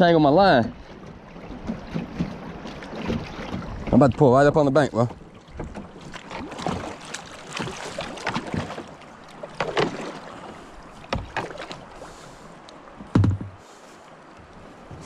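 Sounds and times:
paddle splashing in water: 0.3 - 15.0
light knocks: 13.0 - 13.6
deep thump: 13.1 - 13.6.

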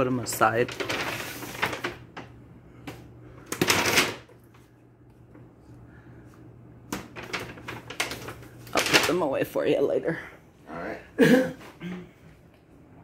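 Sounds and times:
plastic bag rustling: 0.0 - 2.3, 7.0 - 9.6.

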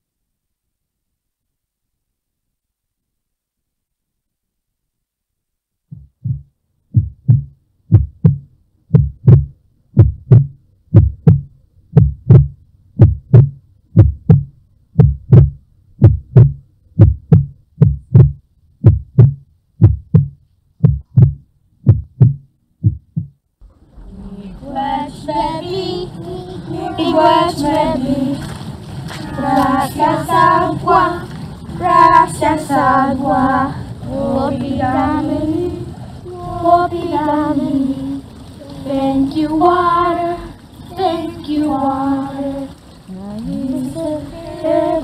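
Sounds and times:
human heartbeat: 5.9 - 23.4
singing voices: 23.8 - 45.0.

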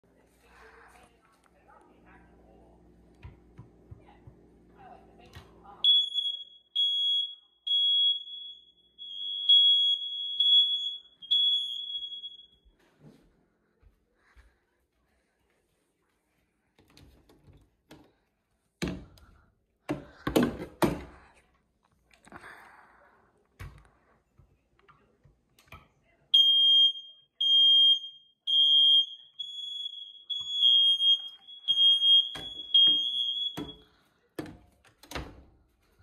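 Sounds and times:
smoke detector beeping: 5.8 - 12.8, 26.4 - 33.9.

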